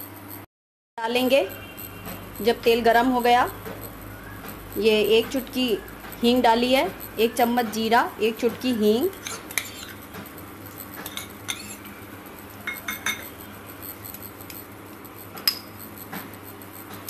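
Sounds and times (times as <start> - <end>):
small glass bowls clinking: 9.1 - 12.0, 12.6 - 13.6, 15.4 - 15.8.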